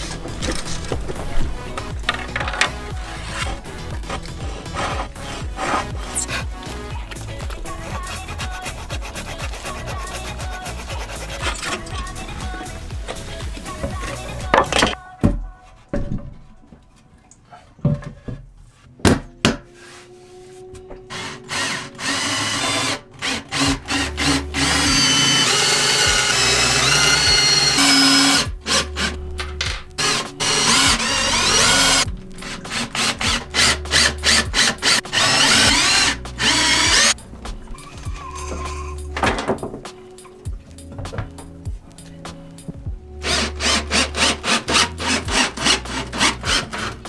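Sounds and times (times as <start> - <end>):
background music: 0.0 - 47.0
cordless drill boring into wood: 21.1 - 29.1, 30.0 - 37.2, 43.2 - 47.0.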